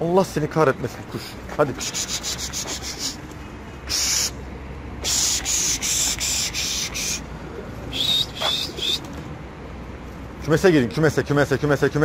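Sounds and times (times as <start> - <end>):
person hissing through teeth: 1.8 - 3.2, 3.9 - 4.4, 5.0 - 7.2.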